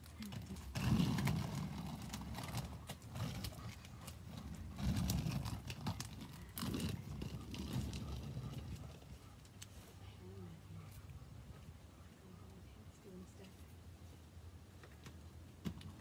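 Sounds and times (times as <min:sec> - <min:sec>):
skate wheels rolling on pavement: 0:00.0 - 0:09.8
skates clicking and clacking: 0:00.3 - 0:09.0.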